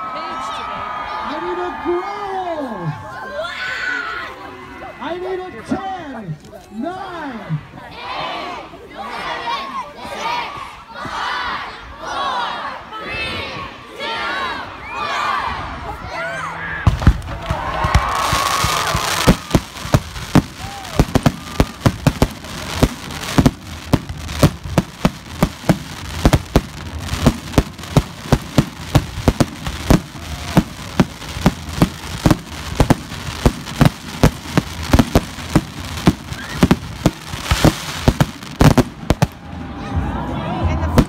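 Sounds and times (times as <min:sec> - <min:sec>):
fireworks bangs and pops: 0:16.8 - 0:39.4.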